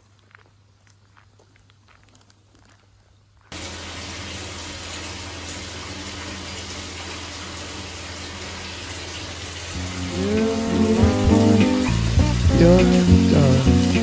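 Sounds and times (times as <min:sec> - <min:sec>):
water running into bathtub: 0:03.4 - 0:14.0.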